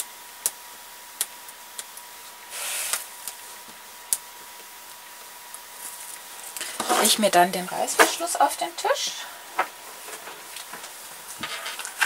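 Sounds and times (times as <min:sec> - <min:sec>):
tape and paper rustling: 0:10.0 - 0:12.0.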